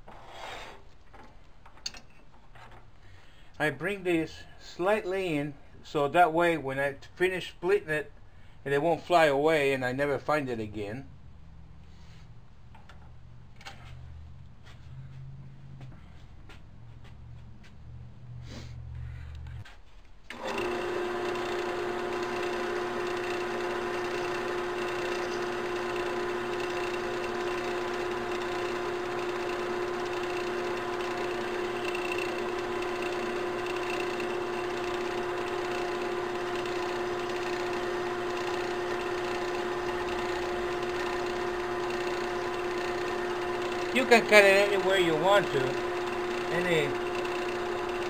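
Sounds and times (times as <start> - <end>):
hacksaw cutting spinning metal tube: 20.3 - 48.0
lathe motor hum: 20.3 - 48.0.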